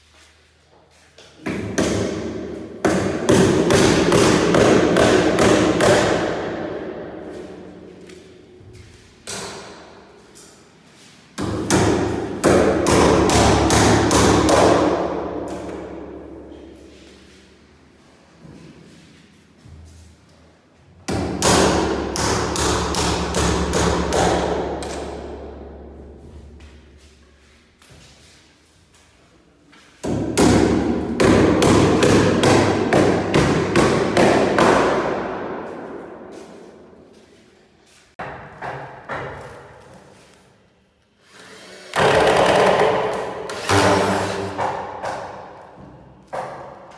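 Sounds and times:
hammer striking wooden door: 0:01.5 - 0:06.8, 0:11.4 - 0:15.9, 0:30.0 - 0:35.6
hammer blows: 0:41.9 - 0:45.5.

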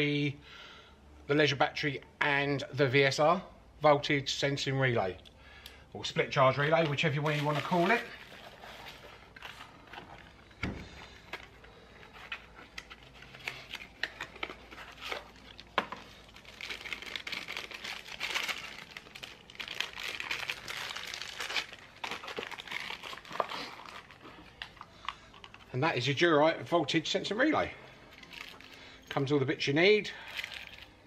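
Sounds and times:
plastic packaging crinkling: 0:06.5 - 0:25.8, 0:28.0 - 0:29.1, 0:30.1 - 0:31.0.

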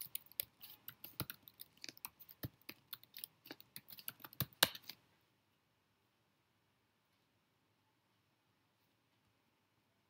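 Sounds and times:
keyboard typing: 0:00.0 - 0:05.0.

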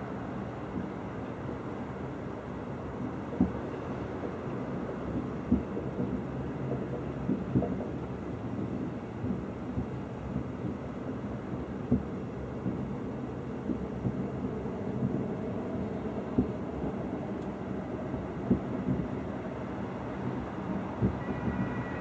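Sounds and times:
distant fireworks bursting: 0:05.0 - 0:22.0.

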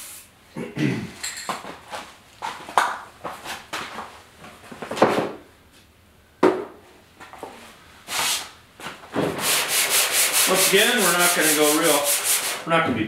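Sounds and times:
tools knocking and clattering: 0:01.2 - 0:01.7.

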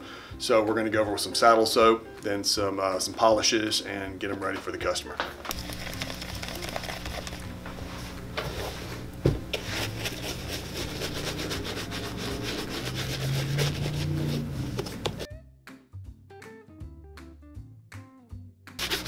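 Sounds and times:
brush scrubbing leather: 0:09.6 - 0:15.3, 0:18.8 - 0:19.0.

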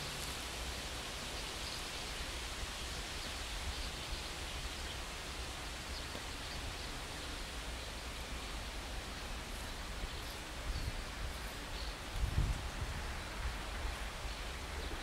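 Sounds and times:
rustling vegetation: 0:00.0 - 0:15.0
wind hiss: 0:00.0 - 0:15.0
wind rumbling on microphone: 0:09.9 - 0:15.0.

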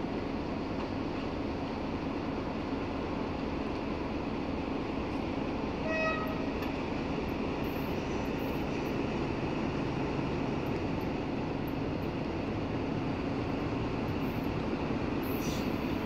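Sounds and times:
diesel locomotive running: 0:00.0 - 0:16.0
train horn toot: 0:05.8 - 0:06.5.

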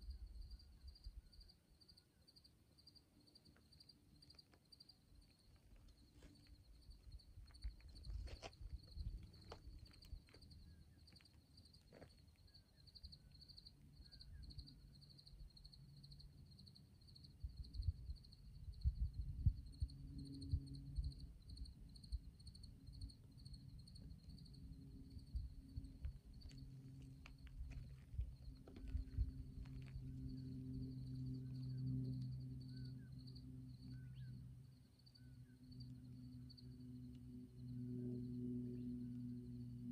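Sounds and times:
cricket chirping: 0:00.0 - 0:39.9
faint low hum: 0:00.0 - 0:39.9.

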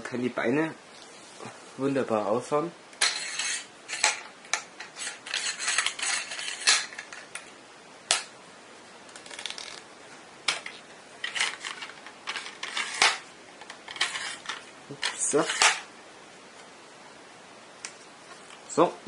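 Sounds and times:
tripod leg sections sliding: 0:03.0 - 0:07.2, 0:11.2 - 0:15.9.

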